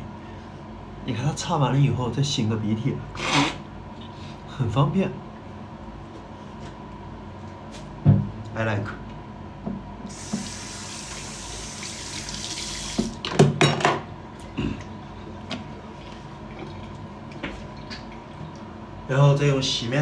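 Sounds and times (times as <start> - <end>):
tap running into washbasin: 10.1 - 13.6.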